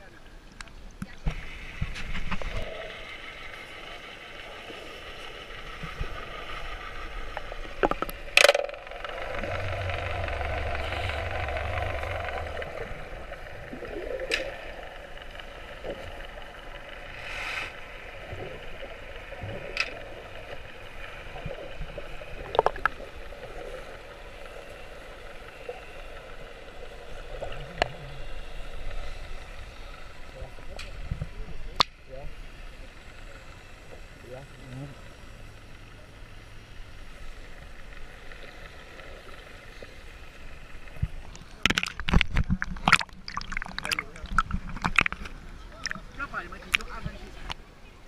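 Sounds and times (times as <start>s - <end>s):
muffled underwater water noise: 0.0s - 48.0s
low rumble: 4.5s - 17.1s
sharp underwater clicks and knocks: 7.3s - 13.0s, 14.2s - 14.7s, 19.5s - 20.1s, 21.4s - 23.0s, 40.9s - 46.1s.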